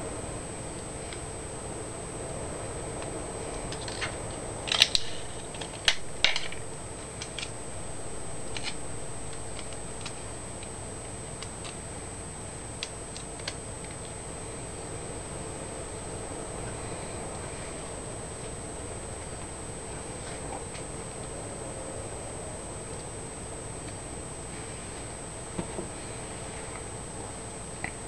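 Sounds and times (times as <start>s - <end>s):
steady hiss with high whine: 0.0s - 28.0s
paper crinkling: 3.8s - 10.8s.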